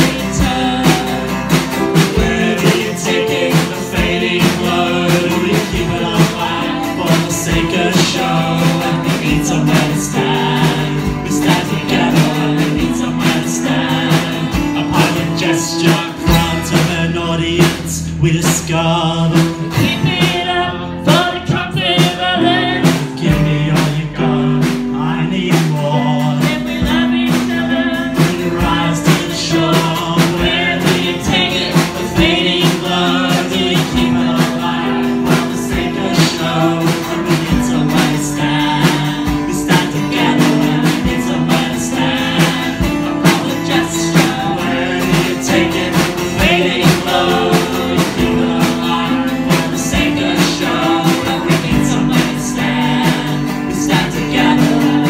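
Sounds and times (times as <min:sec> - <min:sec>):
drums: 0:00.0 - 0:55.0
strummed acoustic guitar: 0:00.0 - 0:55.0
woman and man singing: 0:00.0 - 0:55.0.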